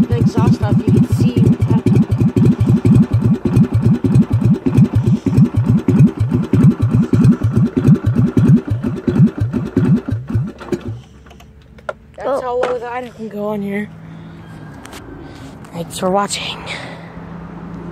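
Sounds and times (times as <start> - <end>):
mower engine idling low: 0.0 - 11.6.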